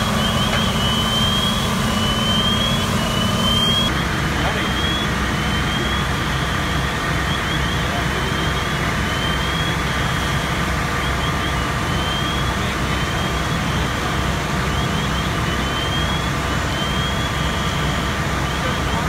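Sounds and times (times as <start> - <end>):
high rising chirps: 0.0 - 3.9
engines rumbling: 0.0 - 19.0.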